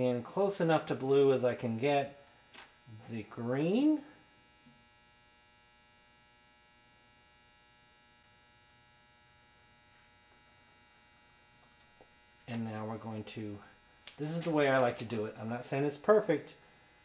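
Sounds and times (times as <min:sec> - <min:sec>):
faint electrical hum: 0:00.0 - 0:17.0.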